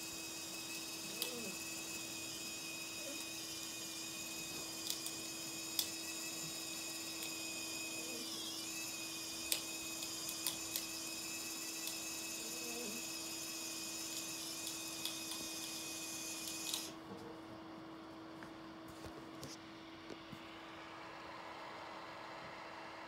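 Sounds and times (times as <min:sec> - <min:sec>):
electric motor hum and whine: 0:00.0 - 0:23.0.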